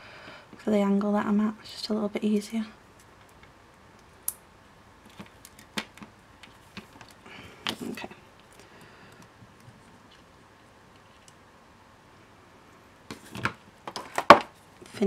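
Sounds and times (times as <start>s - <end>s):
fingers rustling wire: 5.0s - 11.4s.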